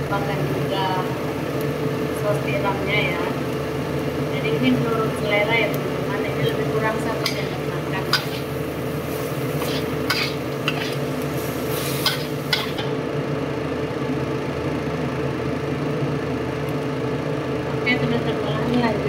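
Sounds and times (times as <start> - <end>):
light sizzle: 0.0 - 13.2, 15.8 - 17.3
steady hum: 0.0 - 19.0
metal spatula scraping a wok: 7.2 - 12.9.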